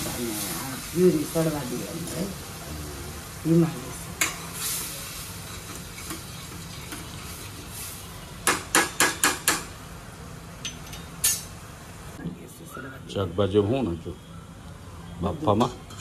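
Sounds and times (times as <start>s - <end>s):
oil sizzling: 0.0s - 12.2s
ladle stirring in pan: 4.2s - 8.1s.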